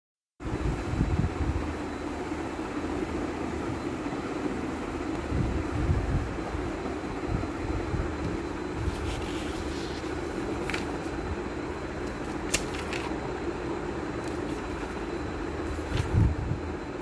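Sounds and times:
steady low hum: 0.4s - 17.0s
book pages turning: 8.8s - 11.2s, 11.9s - 13.2s, 14.2s - 16.3s.

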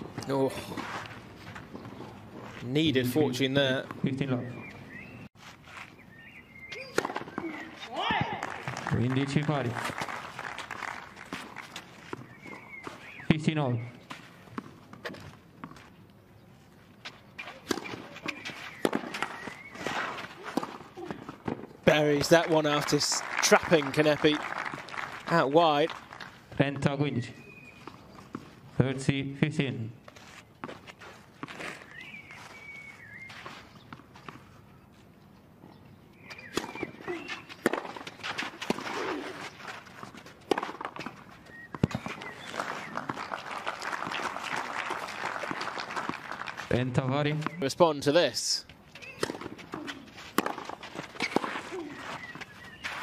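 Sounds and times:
tennis ball bouncing on clay: 6.7s - 15.9s, 17.4s - 26.9s, 36.2s - 47.7s, 48.9s - 53.0s
racket striking ball: 6.8s - 8.8s, 17.4s - 21.7s, 36.4s - 39.4s, 40.4s - 41.2s, 49.0s - 52.4s.

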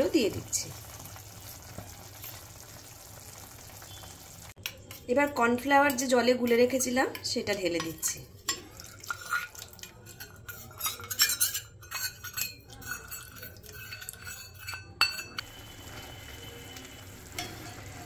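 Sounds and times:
utensil clinking against pot: 5.8s - 15.4s, 17.2s - 18.0s.

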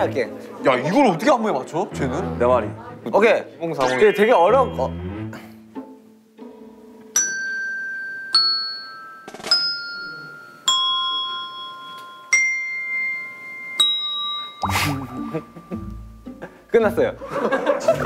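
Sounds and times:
tuned desk bells ringing: 7.2s - 16.3s.

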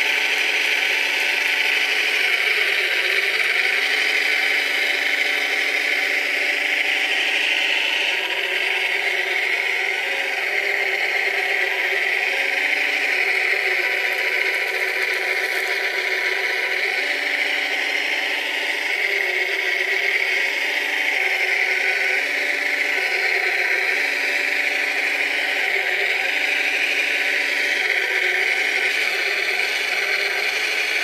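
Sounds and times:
motors high whine: 0.0s - 31.0s.

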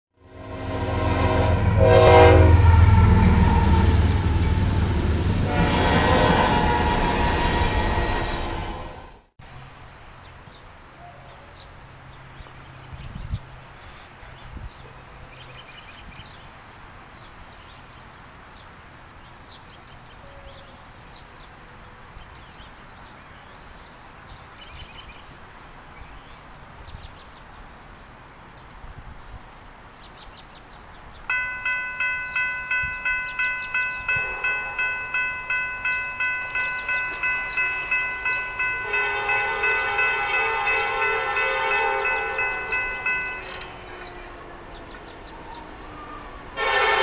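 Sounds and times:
railroad crossing bell ringing: 31.3s - 47.0s.

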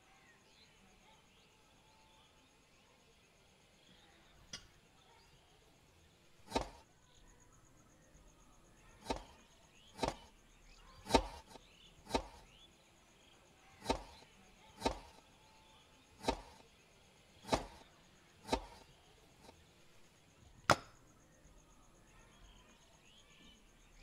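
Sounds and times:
knife chopping on wooden board: 6.5s - 6.8s, 9.0s - 9.4s, 10.0s - 10.3s, 11.0s - 12.6s, 13.8s - 15.2s, 16.2s - 16.6s, 17.5s - 18.9s, 20.7s - 21.0s.

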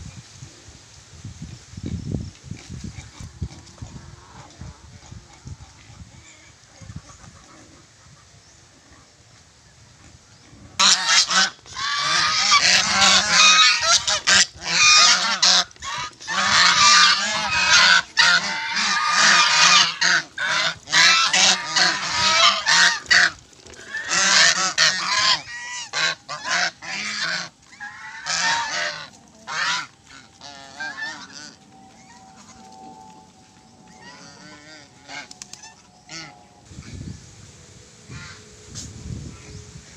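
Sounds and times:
geese honking: 10.8s - 39.9s.

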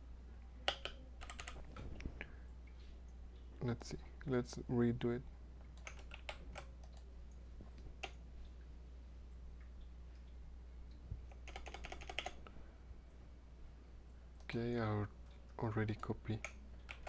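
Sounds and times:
faint keyboard typing: 0.5s - 3.8s, 5.6s - 8.7s, 9.6s - 12.6s, 14.3s - 17.0s.

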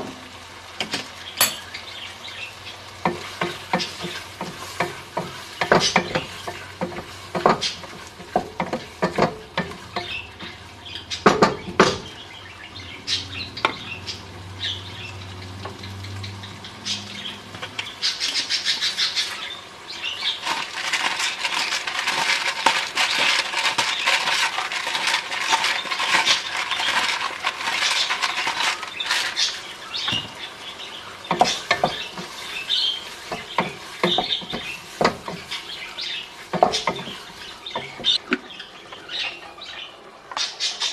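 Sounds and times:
food frying and sizzling: 0.0s - 40.9s
wooden spoon knocking pot: 3.0s - 10.6s, 11.2s - 12.1s, 31.3s - 32.5s, 33.2s - 35.6s, 36.5s - 37.2s.

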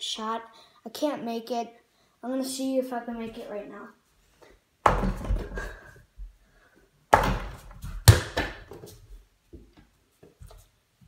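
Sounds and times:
ball thudding against backboard: 4.8s - 5.6s, 7.2s - 8.8s.

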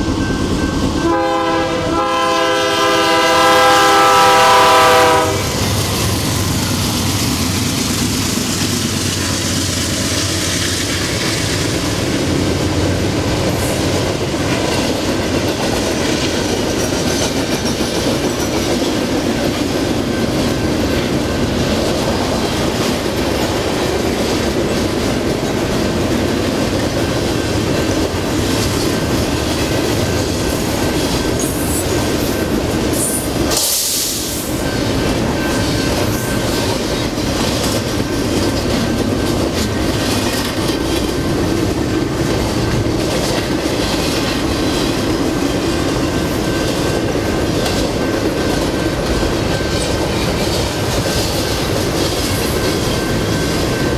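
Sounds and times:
freight train rumbling past: 0.0s - 53.9s
locomotive horn chord: 1.0s - 5.6s
wheels clattering over rail joints: 34.6s - 53.9s.

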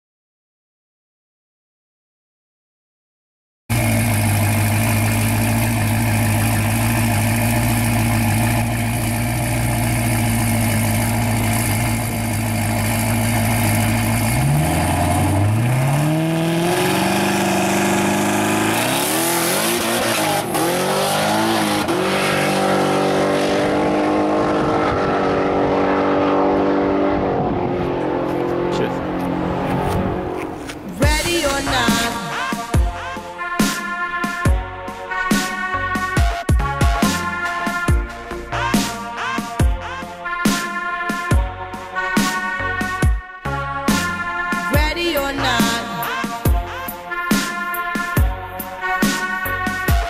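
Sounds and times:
race car engine revving: 3.7s - 32.7s.

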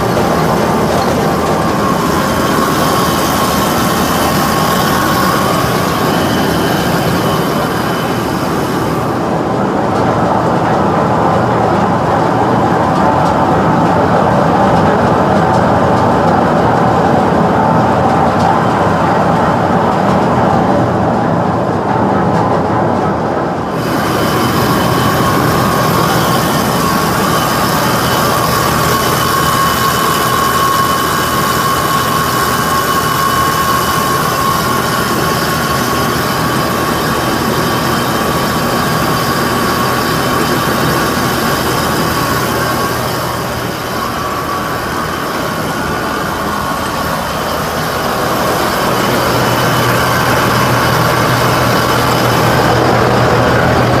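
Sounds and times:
feed grinder running: 0.0s - 9.2s, 23.7s - 54.0s
high whine: 0.0s - 54.0s.

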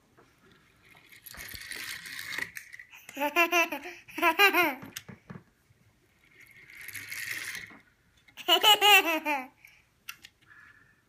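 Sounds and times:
toddler giggling: 3.1s - 4.9s, 8.4s - 9.6s.

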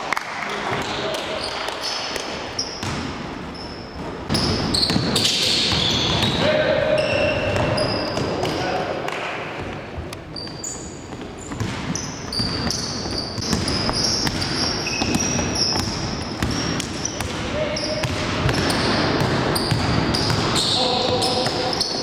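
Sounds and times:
sneakers squeaking on court: 1.3s - 8.6s, 10.2s - 22.0s
basketball bouncing: 2.2s - 3.2s, 11.1s - 17.4s, 18.0s - 21.7s.

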